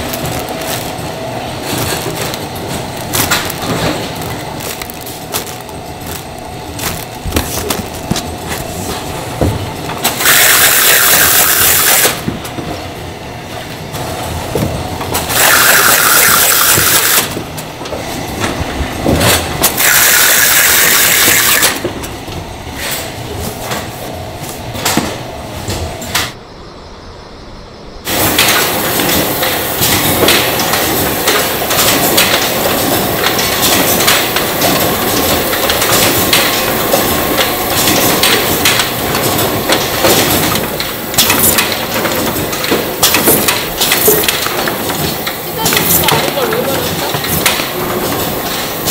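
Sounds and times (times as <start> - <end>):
tape-sealing machine rasping: 0.0 - 12.3, 15.0 - 17.5, 19.2 - 21.9
factory machinery clattering: 0.0 - 26.4, 28.0 - 48.9.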